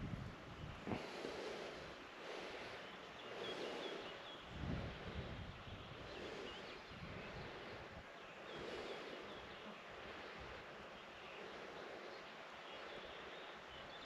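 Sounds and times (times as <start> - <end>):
wind buffeting microphone: 0.0 - 1.1, 4.4 - 8.2
faint bird chirps: 2.6 - 14.0.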